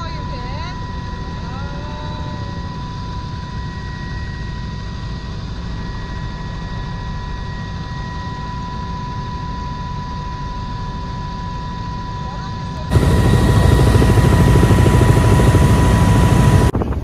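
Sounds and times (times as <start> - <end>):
aircraft engine and airflow rumble: 0.0 - 17.0
high whine: 12.9 - 16.8.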